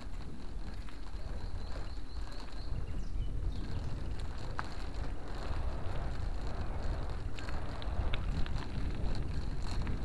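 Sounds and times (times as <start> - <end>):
wind buffeting microphone: 0.0 - 10.0
vehicle rumble: 3.4 - 10.0.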